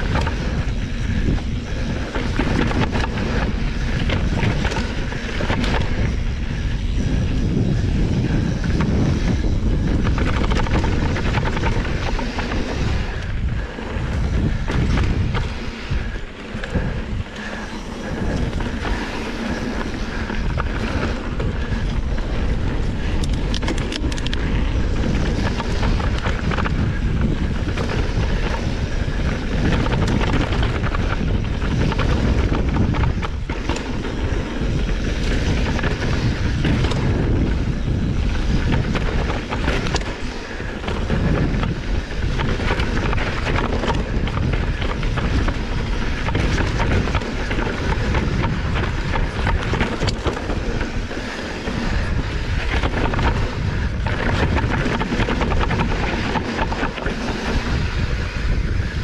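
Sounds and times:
bike rattling: 0.0 - 59.0
wind on microphone: 0.0 - 59.0.

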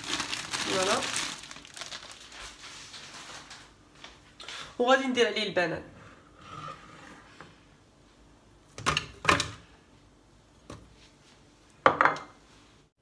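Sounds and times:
ceramic bowl knocking on worktop: 11.8 - 12.3.

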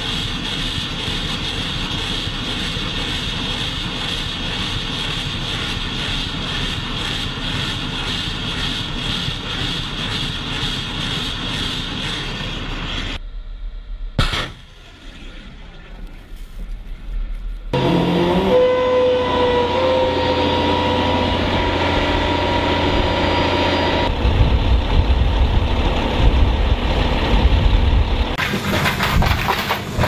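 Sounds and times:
rocket motors roaring: 0.0 - 28.4
faint rumble: 12.0 - 17.8, 24.0 - 28.4
sharp crack: 14.2 - 15.4.

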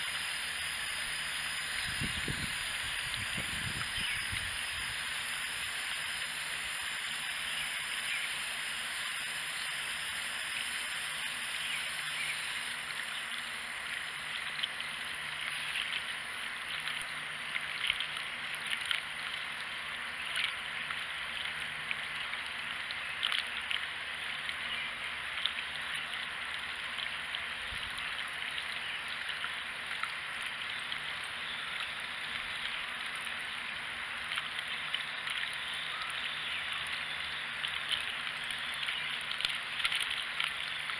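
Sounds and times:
hose water splashing into can: 0.0 - 40.9.

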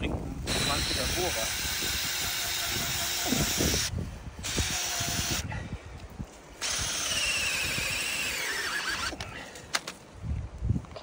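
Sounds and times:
power drill boring into wood: 0.4 - 5.5, 6.6 - 9.2.

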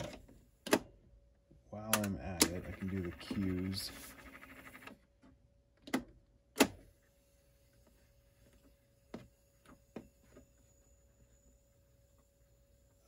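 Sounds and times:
faint steady tone: 6.9 - 13.0.

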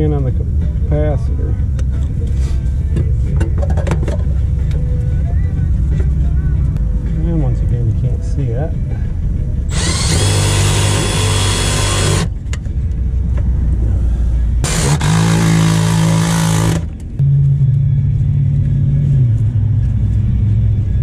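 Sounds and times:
cordless driver driving screws: 9.7 - 12.4, 14.6 - 16.9.

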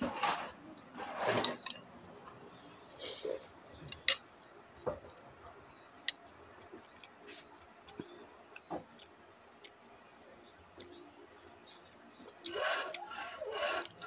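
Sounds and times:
person chewing: 6.0 - 14.0.

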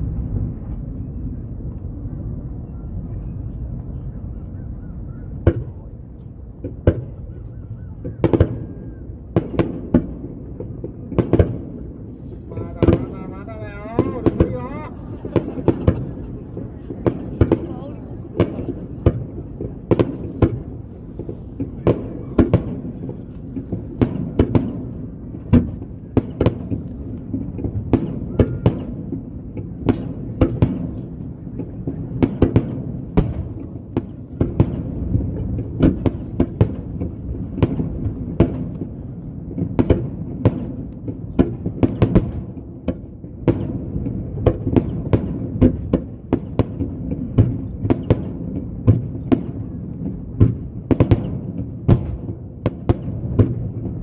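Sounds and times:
low rumble: 0.0 - 6.8
fireworks bangs: 5.3 - 54.0.

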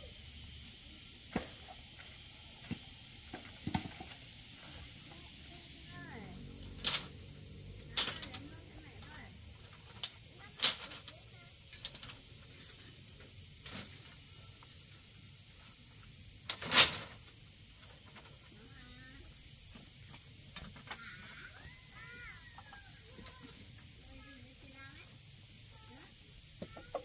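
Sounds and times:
insect chorus: 0.0 - 27.0.

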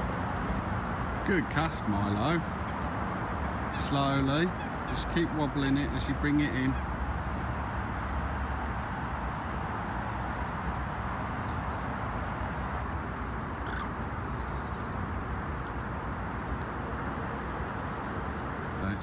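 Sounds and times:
distant traffic hiss: 0.0 - 19.0
faint short bird calls: 13.5 - 14.9.

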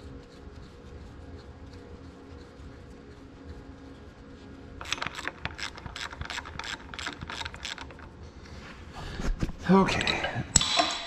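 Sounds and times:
ratchet wrench clicking: 4.8 - 8.1.

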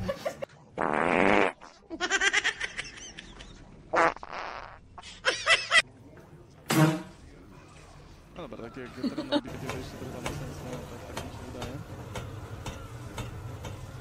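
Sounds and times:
buzzy fart-like noises: 0.8 - 1.9, 3.9 - 5.0.

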